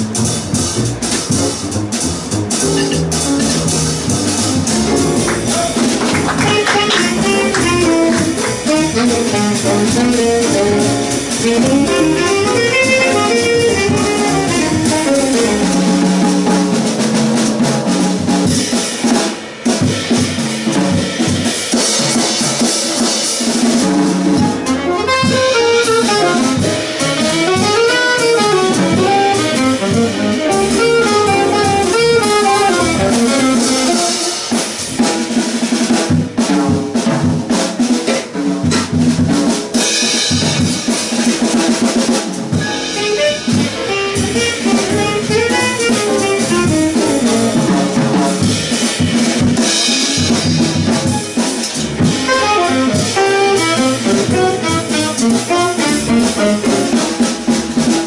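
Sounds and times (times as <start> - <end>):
double bass: 0.0 - 19.2, 19.9 - 21.6, 23.5 - 58.0
acoustic piano: 0.0 - 58.0
drum kit: 0.0 - 58.0
saxophones playing melody: 1.9 - 16.0, 24.6 - 34.6, 42.7 - 47.6, 52.0 - 57.1.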